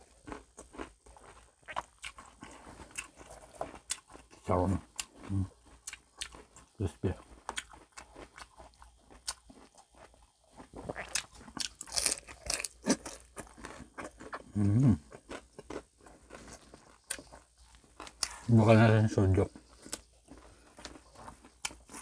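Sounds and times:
crunching crispy fried food: 0.0 - 18.5, 19.5 - 22.0
short low vocal hum: 14.6 - 15.0.

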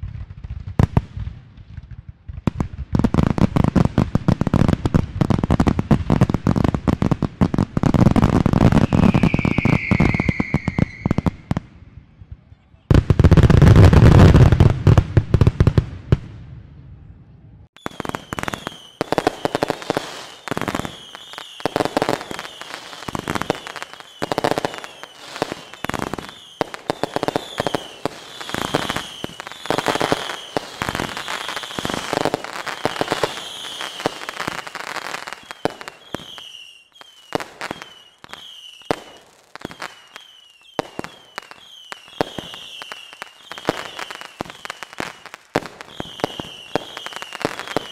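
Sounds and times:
firework cracks and pops: 0.0 - 11.6, 17.8 - 47.9
high-pitched falling whistles: 8.6 - 11.5.

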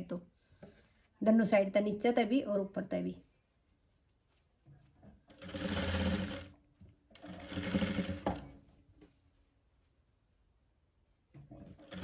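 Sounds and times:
sewing machine stitching: 5.3 - 8.6, 11.6 - 12.0.

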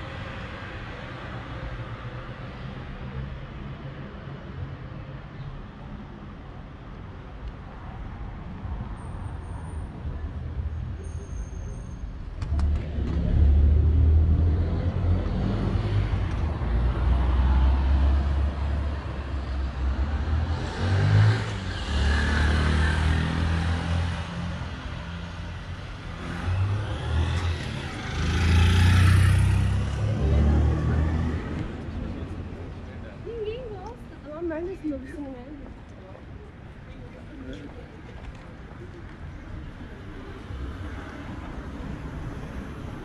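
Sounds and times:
cars driving past: 8.6 - 35.1.

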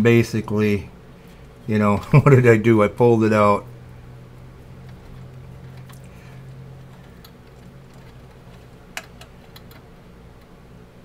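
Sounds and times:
low electrical hum: 0.0 - 11.0
fingers clicking wires and switch: 6.8 - 10.6.

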